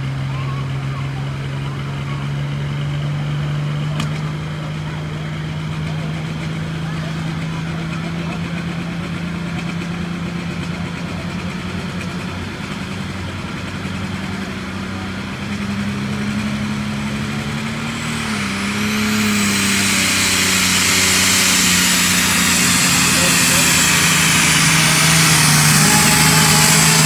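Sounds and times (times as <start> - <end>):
diesel tractor engine revving: 0.0 - 27.0
turbocharger whine: 0.0 - 27.0.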